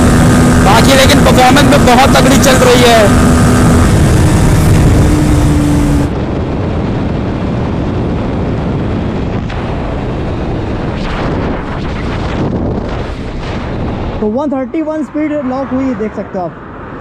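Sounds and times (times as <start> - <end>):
high-revving motorcycle engine: 0.0 - 8.2
heavy wind rush: 0.0 - 17.0.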